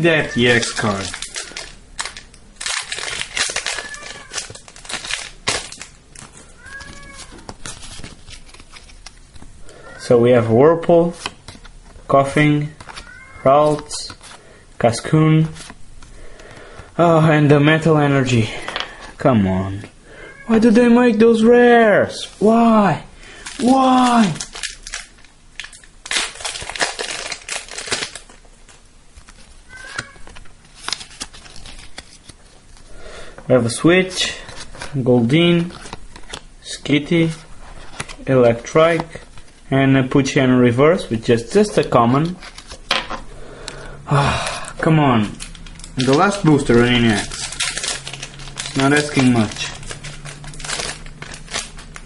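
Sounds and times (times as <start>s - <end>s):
trading cards being handled: 0.0s - 10.0s, 10.8s - 20.0s, 20.6s - 39.8s, 41.0s - 52.0s
foil wrapper crinkling: 0.2s - 10.0s, 23.2s - 33.3s, 34.1s - 36.5s, 37.1s - 39.7s, 41.4s - 42.9s, 44.2s - 52.0s.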